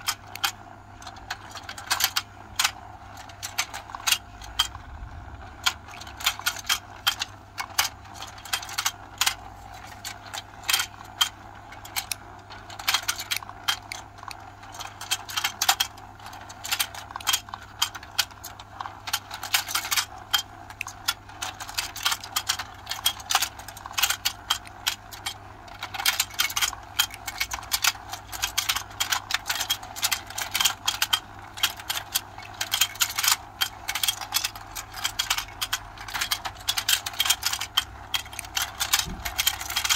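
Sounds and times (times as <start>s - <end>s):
hard plastic clicking and clacking: 0.0s - 39.9s.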